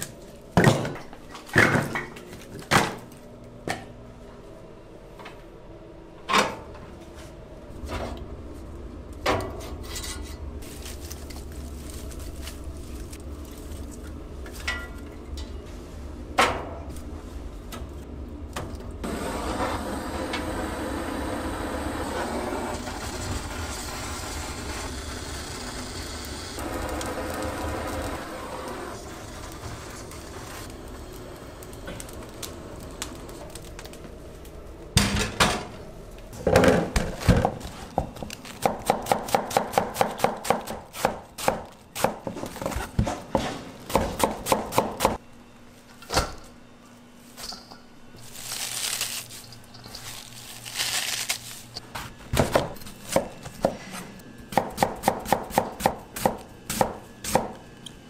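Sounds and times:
butane torch hissing: 19.0s - 33.5s.

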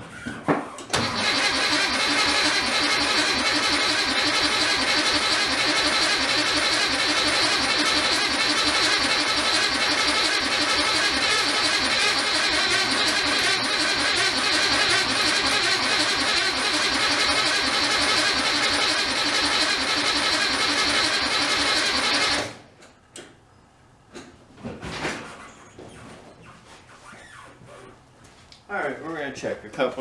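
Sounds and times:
car starter cranking engine: 0.8s - 22.7s.

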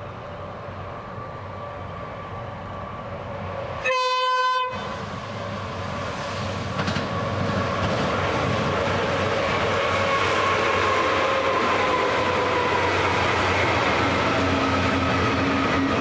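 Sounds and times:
diesel locomotive engine drone: 0.0s - 16.0s
train horn blast: 3.8s - 4.9s
train wheel clatter: 6.3s - 16.0s.

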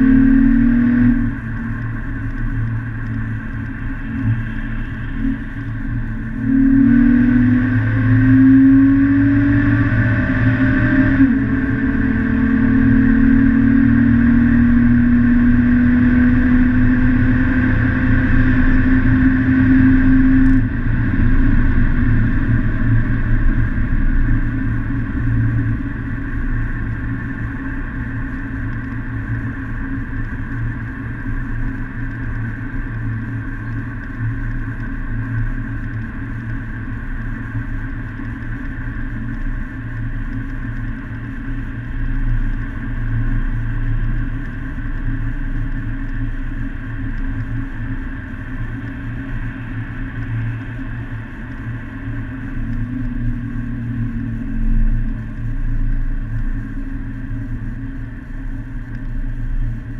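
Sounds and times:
car engine accelerating: 0.0s - 37.3s
tyre and road noise: 0.0s - 59.9s.

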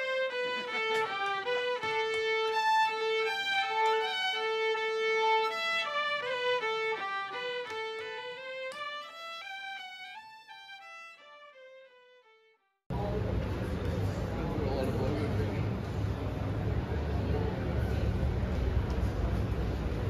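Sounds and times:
fiddle melody: 0.0s - 12.7s.

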